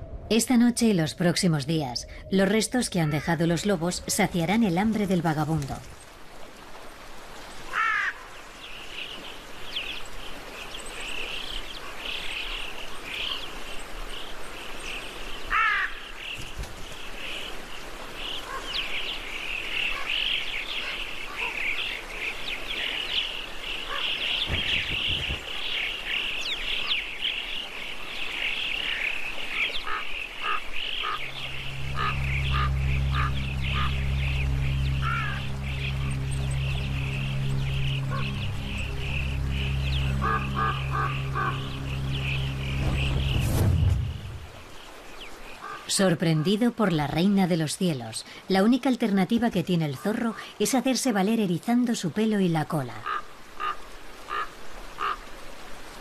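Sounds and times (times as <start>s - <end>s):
low sustained music tones: 0.0s - 15.5s, 17.1s - 46.2s
birds chirping and chattering: 8.6s - 46.5s
rising whistled bird calls: 28.4s - 45.8s.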